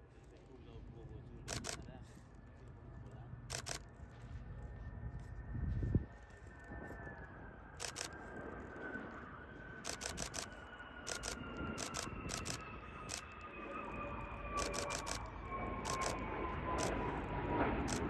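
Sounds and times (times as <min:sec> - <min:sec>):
jet engines rumbling and whining: 0:00.0 - 0:18.0
camera shutters clicking: 0:01.5 - 0:01.8, 0:03.5 - 0:03.8, 0:07.8 - 0:08.1, 0:09.9 - 0:10.5, 0:11.1 - 0:13.3, 0:14.6 - 0:15.3, 0:15.9 - 0:16.2.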